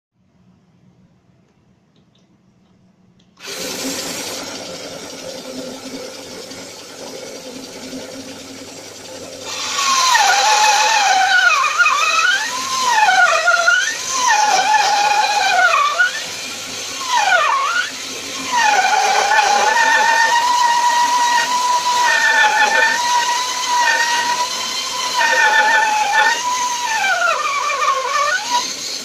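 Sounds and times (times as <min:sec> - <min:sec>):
bandsaw running: 0:09.4 - 0:29.0
bandsaw whining cutting wood: 0:09.4 - 0:29.0.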